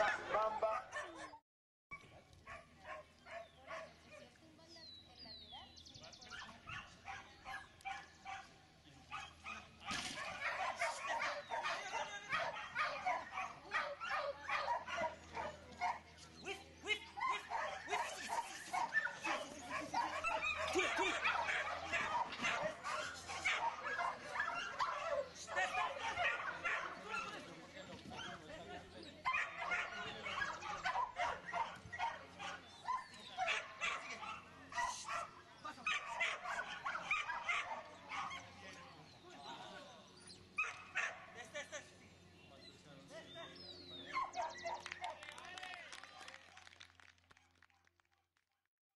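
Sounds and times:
dog barking: 0.0 - 1.3, 2.5 - 3.9, 6.3 - 8.5, 9.1 - 16.0, 17.2 - 27.3, 29.3 - 38.5, 40.6 - 41.3, 44.1 - 45.1.

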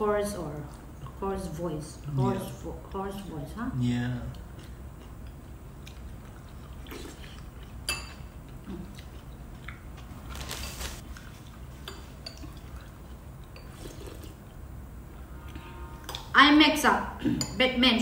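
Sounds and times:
soup sipping and chewing: 4.3 - 14.6
spoons clinking on ceramic bowls: 7.8 - 8.2
slurp: 13.7 - 14.4.

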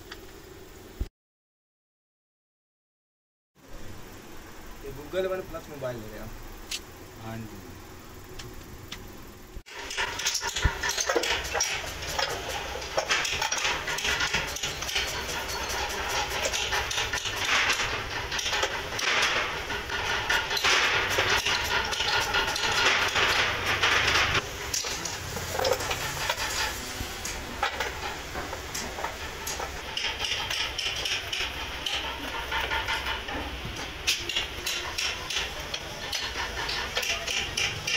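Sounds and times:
sanding block scratching wood: 10.1 - 24.4, 25.0 - 34.0.

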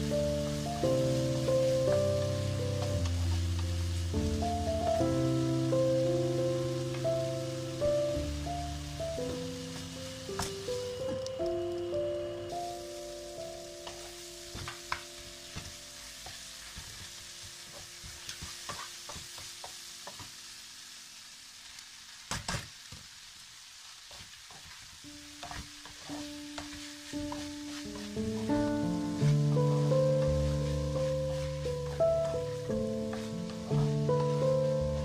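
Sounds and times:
food sizzling in frying pan: 0.0 - 35.0
wooden spatula scraping pan: 24.1 - 35.0
faint background music: 25.2 - 35.0.

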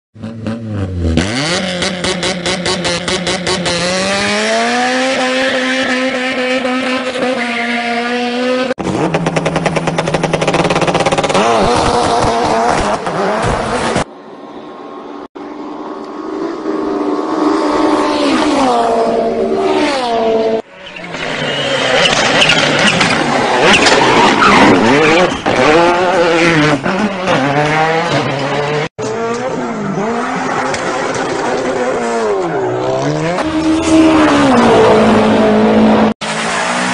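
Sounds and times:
rally car engine revving: 0.2 - 14.1, 16.4 - 36.9
tyre squeal: 20.7 - 26.2.

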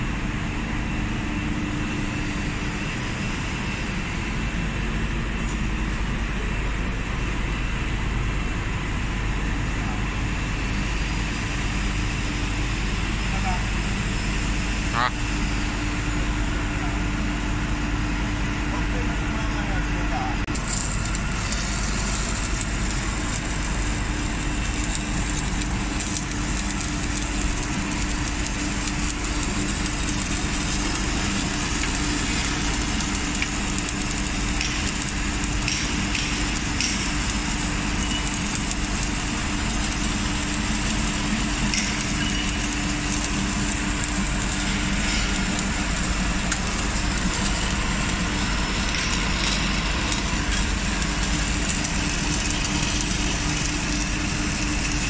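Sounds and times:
machine hum: 0.0 - 55.0
welding hiss: 20.5 - 55.0.

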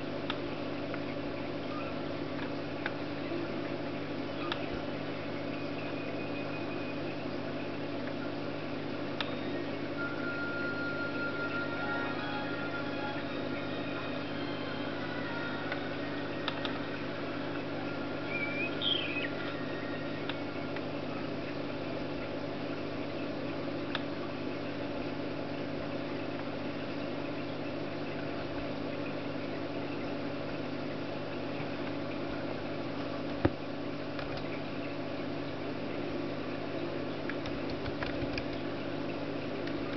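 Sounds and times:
netbook humming: 3.1 - 22.6.

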